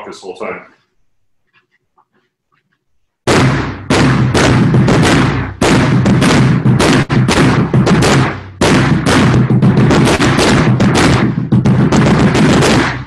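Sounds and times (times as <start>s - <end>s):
bass drum struck with mallets: 3.3s - 13.0s.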